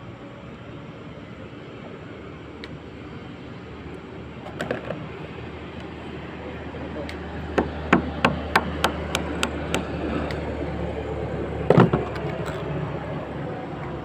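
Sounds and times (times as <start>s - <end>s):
sharp taps of hand tool: 7.1s - 10.4s
heavy knock on roof edge: 7.6s - 9.9s.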